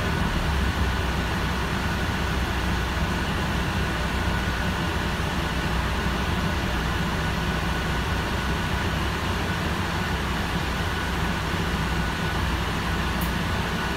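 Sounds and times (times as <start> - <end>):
bus cabin rumble and hiss: 0.0 - 13.9.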